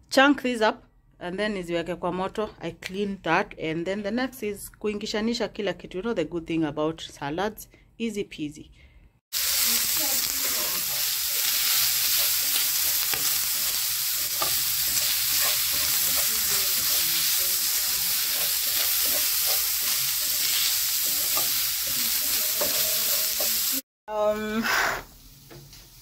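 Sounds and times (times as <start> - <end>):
bacon sizzling in a frying pan: 9.3 - 24.3.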